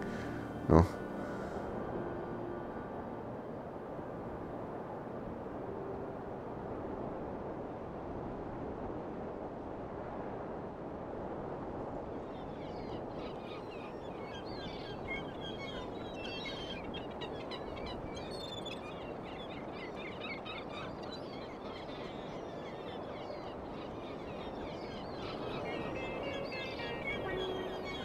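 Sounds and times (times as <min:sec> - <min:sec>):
low rushing background: 0:00.0 - 0:10.2
birds chirping: 0:12.4 - 0:28.0.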